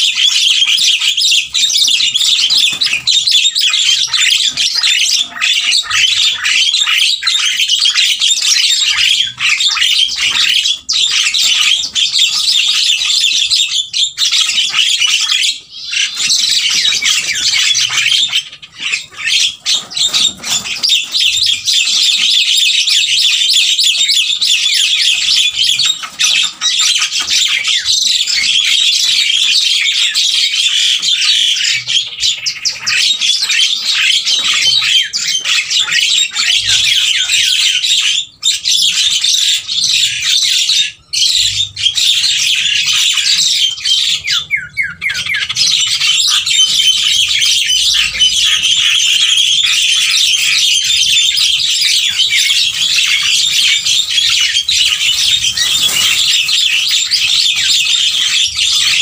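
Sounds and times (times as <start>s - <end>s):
birds chattering and squawking: 0.0s - 59.0s.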